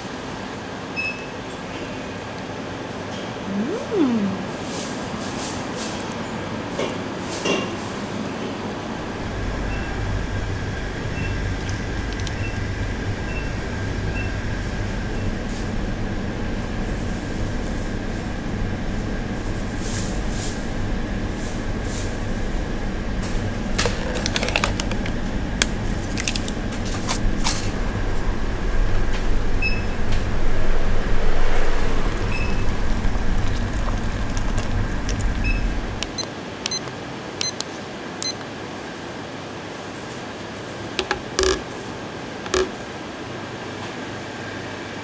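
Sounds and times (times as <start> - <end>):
hum of store machinery: 0.0 - 45.0
faint high whine: 9.0 - 15.5
paper cup crinkling: 23.7 - 27.3, 32.7 - 35.4.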